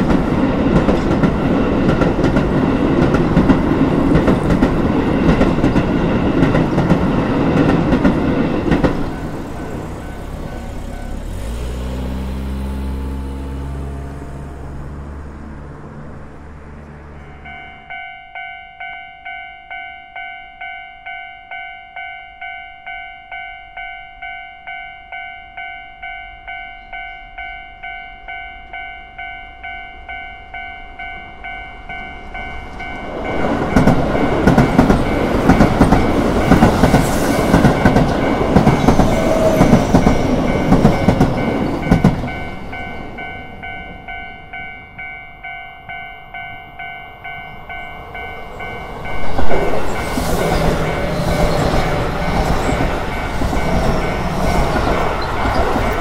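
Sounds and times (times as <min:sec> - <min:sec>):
level-crossing warning bell ringing: 0:00.0 - 0:11.8, 0:17.2 - 0:56.0
train rumbling and clattering: 0:00.0 - 0:23.1, 0:26.9 - 0:56.0.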